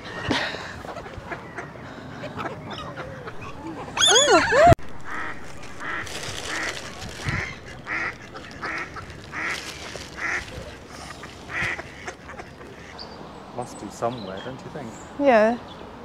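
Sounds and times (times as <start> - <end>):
duck quacking: 5.0 - 12.9.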